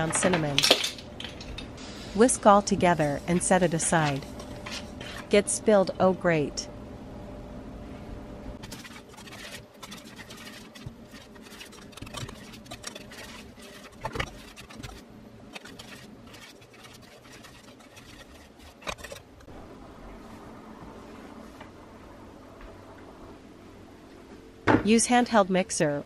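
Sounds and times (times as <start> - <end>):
whisk scraping metal bowl: 2.4 - 5.4, 8.6 - 19.5.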